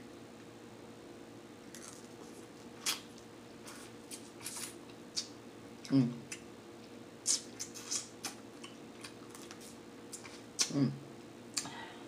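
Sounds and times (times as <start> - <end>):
person humming: 5.8 - 6.2, 10.6 - 11.0.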